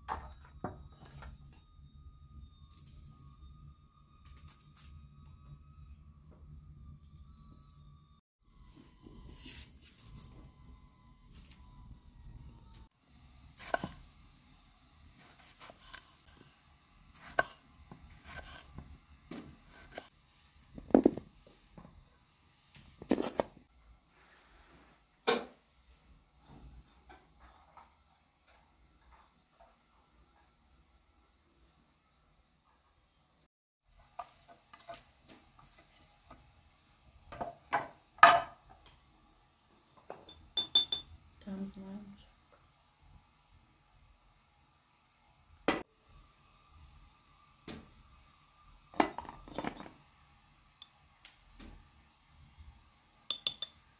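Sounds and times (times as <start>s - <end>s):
knife slicing tomatoes: 17.2s - 18.8s
clay cups clinking: 40.1s - 41.1s, 53.3s - 53.8s.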